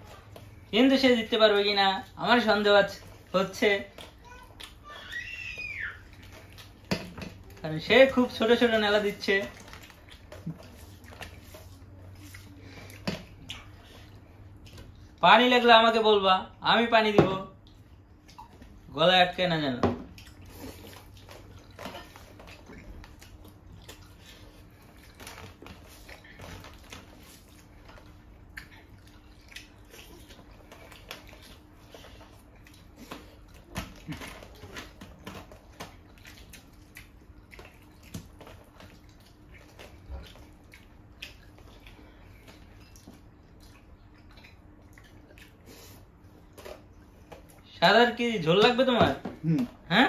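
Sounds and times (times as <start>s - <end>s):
wet chewing and lip smacks: 3.9s - 4.8s, 6.0s - 7.6s, 9.5s - 15.2s, 20.1s - 47.7s.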